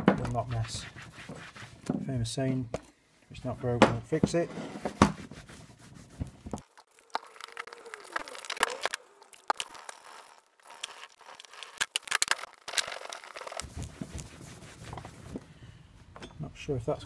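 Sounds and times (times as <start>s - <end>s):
cloth rubbing on seat: 0.4s - 1.8s, 4.6s - 6.6s, 13.6s - 15.4s.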